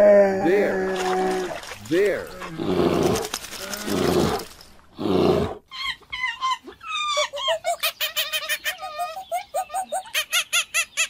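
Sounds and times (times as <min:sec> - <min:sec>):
bear growling: 0:00.0 - 0:05.6
monkey chirping: 0:05.7 - 0:11.0.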